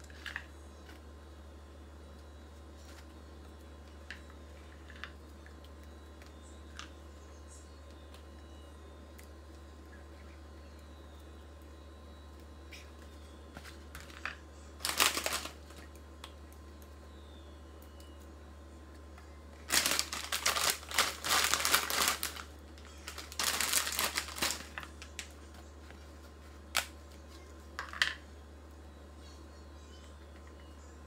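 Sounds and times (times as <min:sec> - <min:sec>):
chips bag crackling: 0:14.8 - 0:15.8, 0:19.6 - 0:25.3.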